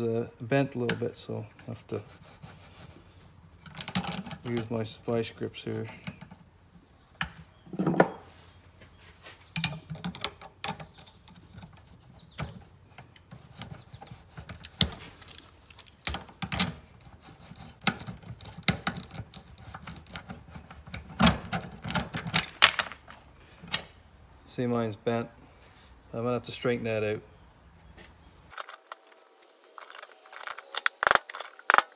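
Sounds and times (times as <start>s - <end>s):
metal clicks and clanks: 3.6s - 4.7s, 14.4s - 16.8s.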